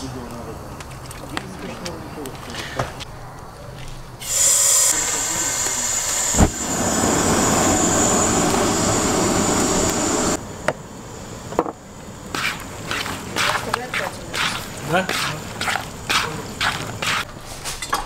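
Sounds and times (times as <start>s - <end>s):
burner flame rushing: 4.2s - 17.3s
gas hissing: 4.2s - 17.3s
low thump: 6.4s - 6.6s.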